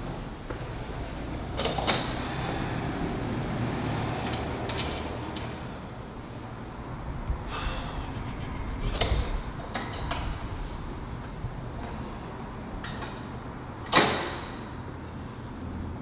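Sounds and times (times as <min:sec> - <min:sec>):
low rumble: 0:06.8 - 0:11.9.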